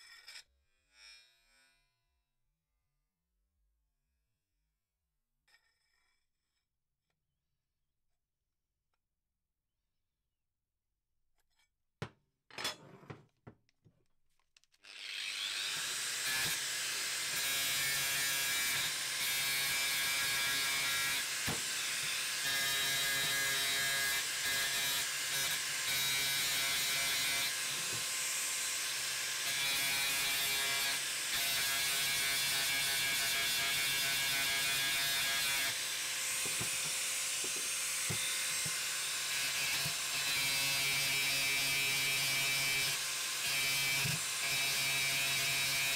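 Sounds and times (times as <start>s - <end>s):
angle grinder cutting metal: 14.8s - 45.9s.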